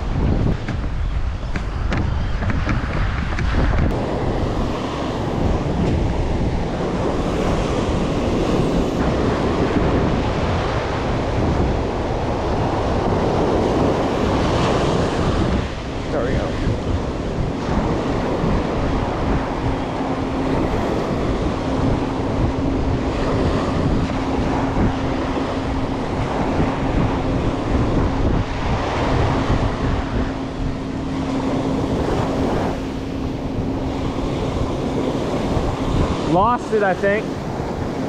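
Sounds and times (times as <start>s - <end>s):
steady low hum: 0.0s - 38.0s
surf washing up beach: 0.0s - 38.0s
wind buffeting microphone: 0.0s - 38.0s.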